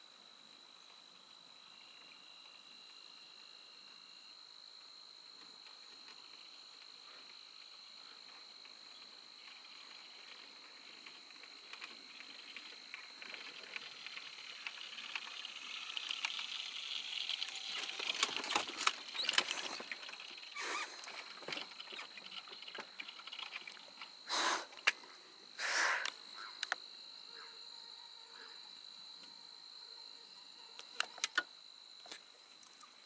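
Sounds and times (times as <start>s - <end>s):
high insect drone: 0.0s - 33.0s
rustling and crackling: 5.6s - 24.2s.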